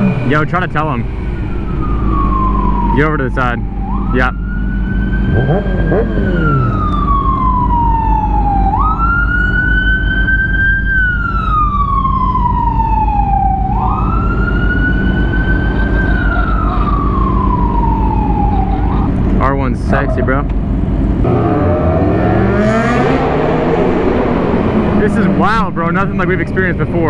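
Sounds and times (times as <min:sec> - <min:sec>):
fire engine siren wailing: 0:00.0 - 0:20.2
low engine rumble: 0:00.0 - 0:22.6, 0:23.2 - 0:27.0.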